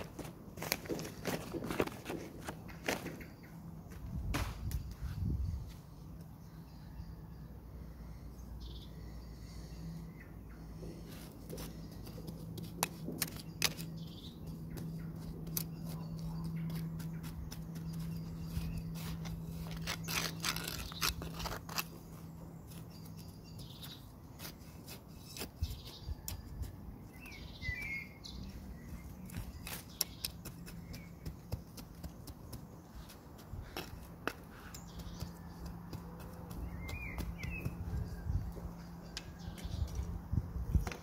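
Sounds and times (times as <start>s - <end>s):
bird chirping: 4.6s - 12.3s, 13.2s - 41.0s
hand trowel scraping soil: 11.0s - 26.4s, 29.0s - 32.1s.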